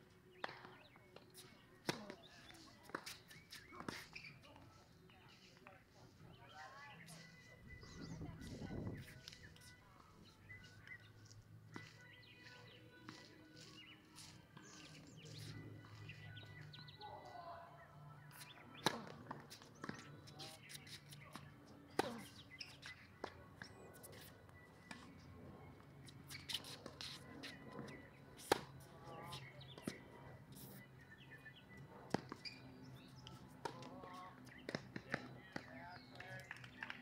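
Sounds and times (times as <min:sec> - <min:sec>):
birds chirping faintly: 0:00.0 - 0:37.0
tennis ball hit and bouncing: 0:18.3 - 0:24.3, 0:24.9 - 0:25.1, 0:26.3 - 0:30.0.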